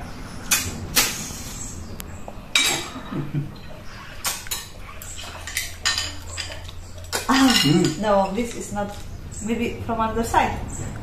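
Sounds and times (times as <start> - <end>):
fork and shells clinking on plate: 4.4 - 9.1.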